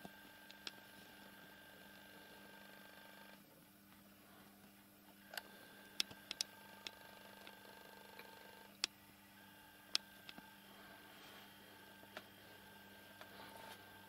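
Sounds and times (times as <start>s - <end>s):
faint steady hum: 0.0s - 14.0s
small sharp clicks: 5.3s - 9.0s.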